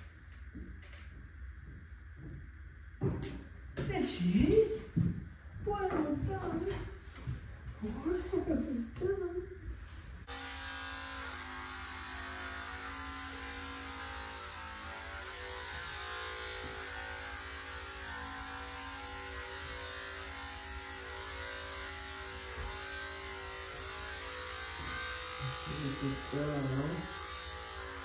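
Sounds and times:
electric clippers running: 10.2 - 28.0.

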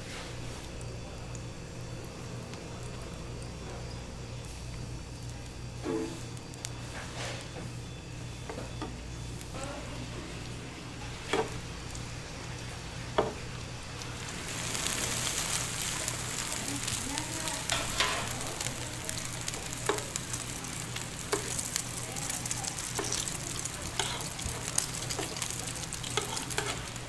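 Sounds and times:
egg sizzling in oil: 0.0 - 27.0
spatulas scraping a pan: 22.4 - 27.0.

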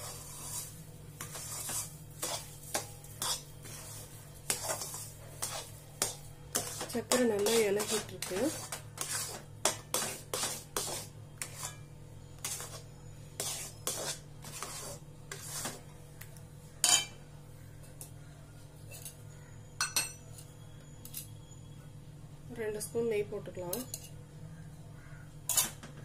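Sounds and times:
metal spatula scraping metal pan: 0.0 - 15.9, 25.5 - 25.9.

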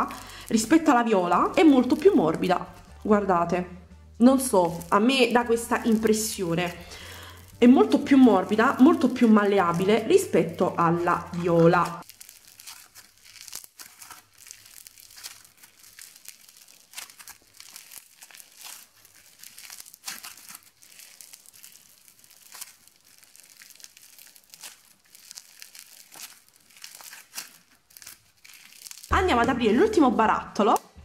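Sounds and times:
quiet irregular crackling beads: 0.0 - 3.3, 4.2 - 29.2
clay squeezed by hand: 11.0 - 29.1.

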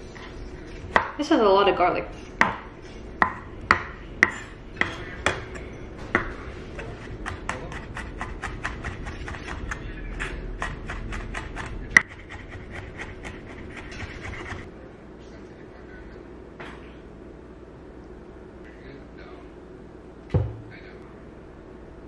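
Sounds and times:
knife chopping on wooden board: 2.4 - 6.4, 7.2 - 9.8, 10.6 - 14.6.

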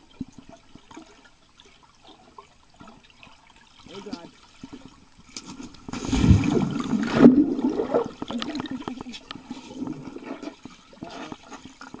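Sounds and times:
underwater water churning: 5.7 - 12.0
gurgling bubbles: 5.9 - 12.0.

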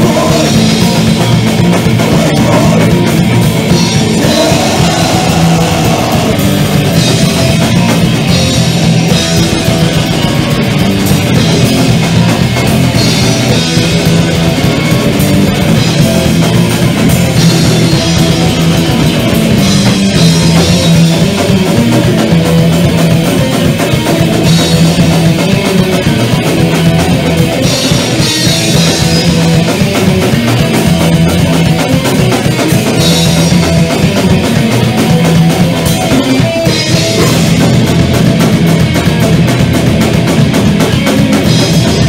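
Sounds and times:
live thrash metal band: 0.0 - 42.0.

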